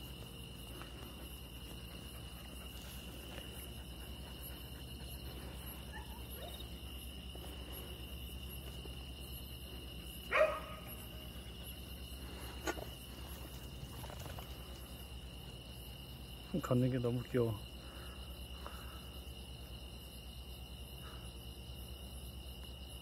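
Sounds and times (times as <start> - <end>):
crickets chirping: 0.0 - 23.0
dog barking: 5.9 - 6.6, 10.3 - 11.0.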